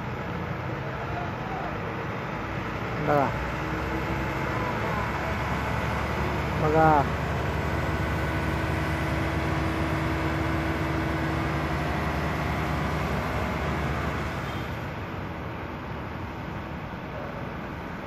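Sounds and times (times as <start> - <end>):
pump engine running: 2.5 - 15.0.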